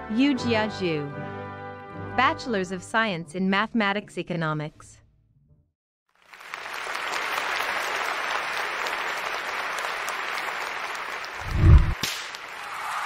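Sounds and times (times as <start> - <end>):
crowd applause: 6.2 - 13.0.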